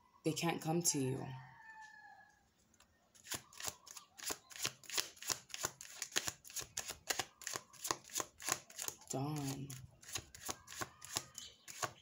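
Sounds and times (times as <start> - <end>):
cards being shuffled: 3.2 - 12.0.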